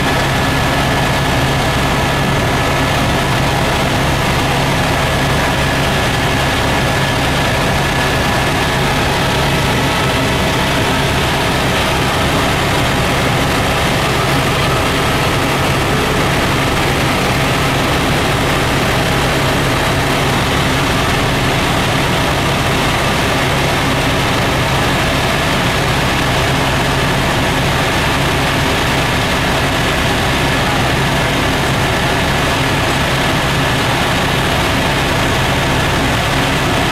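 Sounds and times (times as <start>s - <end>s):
helicopter engine and rotor drone: 0.0s - 36.9s.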